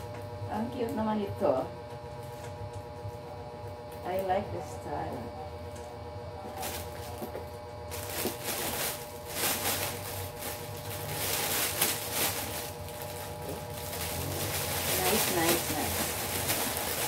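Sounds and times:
plastic wrapping crinkling: 0:06.5 - 0:17.0.

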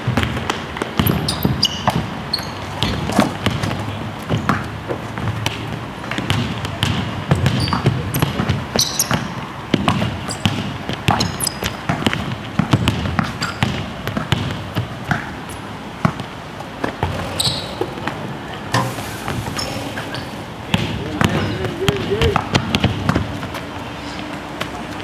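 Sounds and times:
basketballs bouncing on court: 0:00.0 - 0:25.0
short high squeaks: 0:01.0 - 0:03.0, 0:08.8 - 0:09.1, 0:17.2 - 0:18.0.

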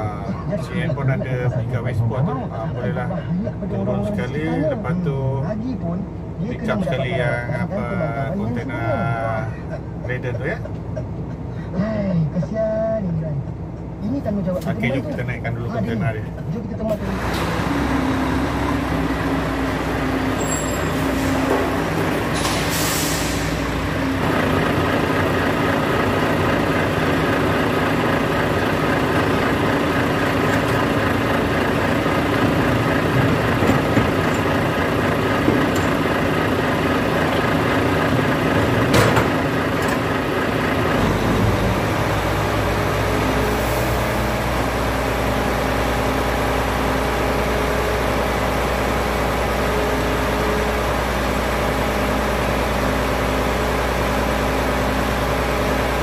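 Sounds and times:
diesel truck engine revving: 0:16.9 - 0:56.0.

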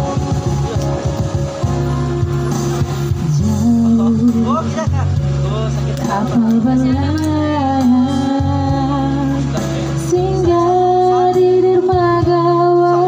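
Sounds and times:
karaoke backing track: 0:00.0 - 0:13.0
woman singing into a microphone: 0:01.6 - 0:04.8, 0:06.0 - 0:13.0.

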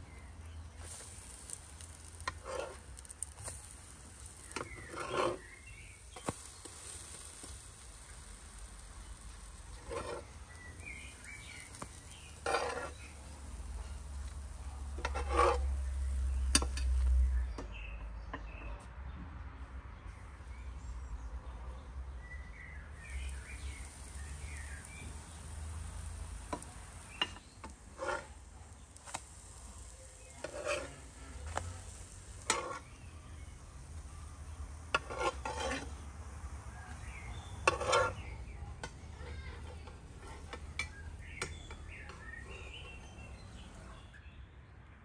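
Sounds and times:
pancakes sizzling in a pan: 0:00.0 - 0:17.4, 0:22.8 - 0:43.7
metal spatula scraping a pan: 0:00.1 - 0:17.2, 0:23.0 - 0:38.4.

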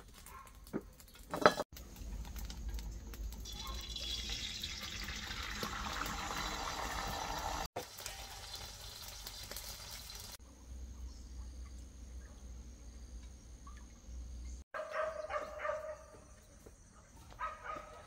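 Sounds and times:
wood fire crackling and hissing: 0:00.0 - 0:10.4.

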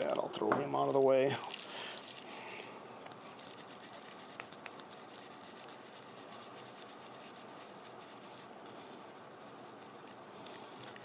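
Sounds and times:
metal part scrubbed on rag: 0:03.1 - 0:11.0.

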